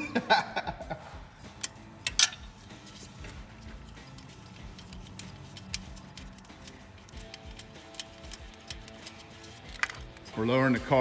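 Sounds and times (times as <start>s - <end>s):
wrench clicking on metal: 1.5s - 2.5s, 3.9s - 10.2s.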